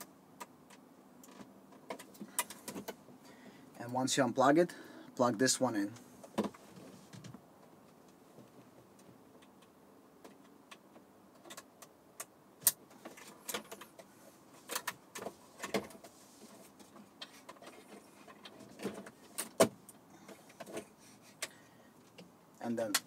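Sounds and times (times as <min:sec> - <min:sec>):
hands handling cables and trim: 0:00.0 - 0:03.0, 0:08.0 - 0:23.0.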